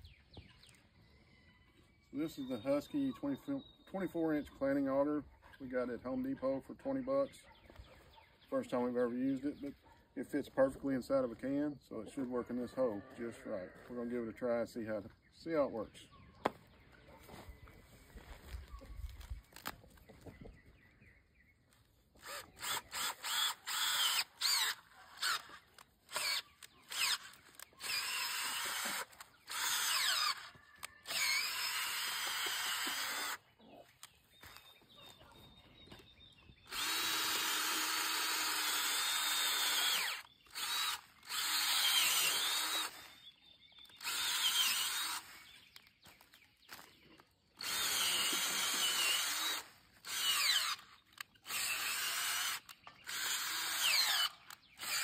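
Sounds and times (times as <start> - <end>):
cordless drill motor whine: 22.2 - 33.4, 36.6 - 45.5, 47.6 - 55.0.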